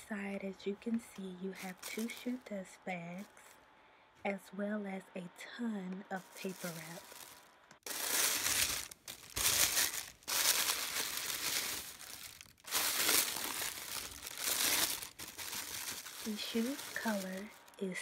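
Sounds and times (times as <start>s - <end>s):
tissue paper crinkling: 1.5s - 2.4s, 6.2s - 17.8s.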